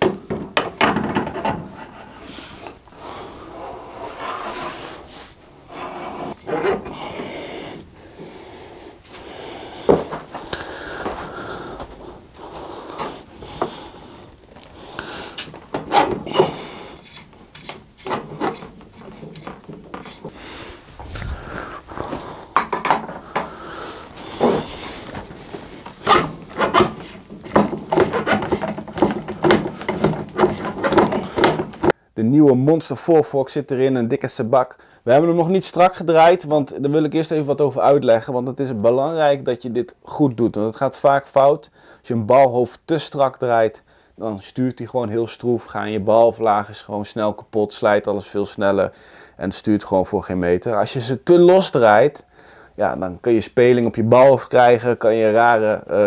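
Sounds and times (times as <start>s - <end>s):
metal scraping against frame: 0.0s - 7.4s, 15.3s - 32.0s
metallic clicks knocks and scrapes: 15.4s - 20.3s.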